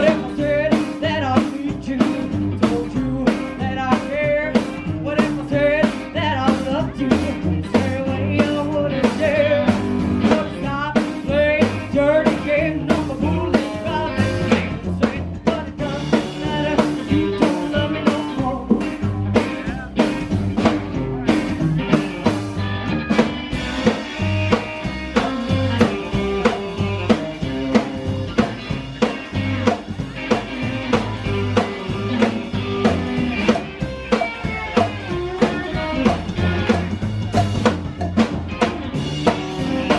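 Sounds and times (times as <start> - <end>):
woman singing: 0.0 - 19.1
rockabilly band playing: 0.0 - 39.9.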